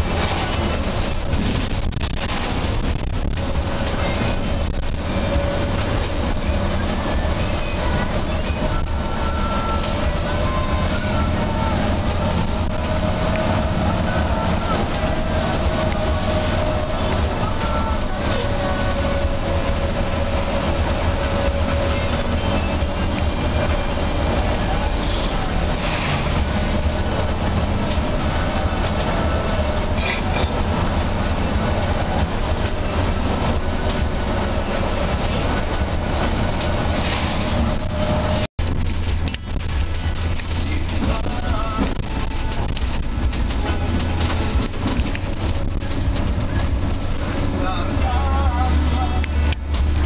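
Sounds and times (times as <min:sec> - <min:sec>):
bus engine and road rumble: 0:00.0 - 0:50.0.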